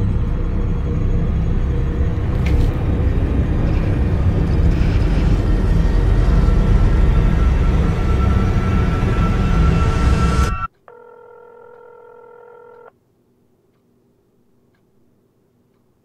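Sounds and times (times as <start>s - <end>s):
low rumbling drone: 0.0s - 10.7s.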